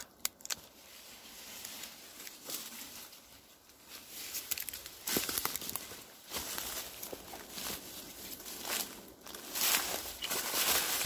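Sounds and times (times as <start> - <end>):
dry bark crackling: 0.0 - 11.0
footsteps on dry leaves and twigs: 0.0 - 11.0.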